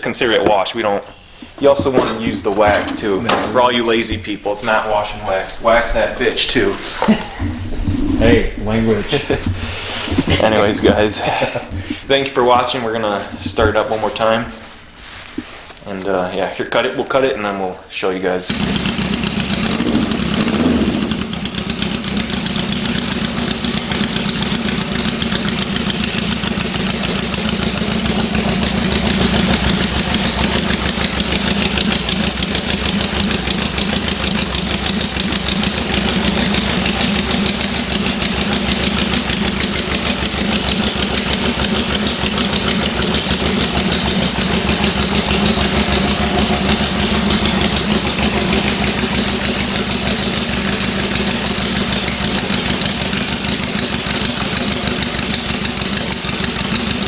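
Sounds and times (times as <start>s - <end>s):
motorcycle engine idling: 18.5s - 57.0s.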